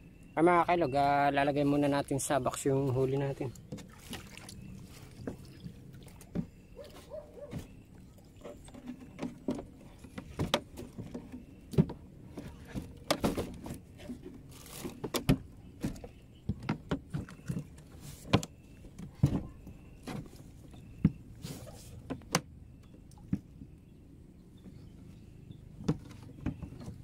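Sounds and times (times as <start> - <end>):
clicks and knocks of cooler box: 8.4 - 21.2.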